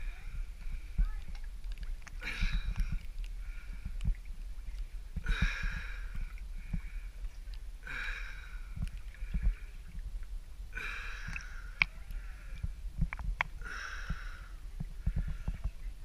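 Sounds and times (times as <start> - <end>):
swimmer breathing loudly: 13.6 - 15.6.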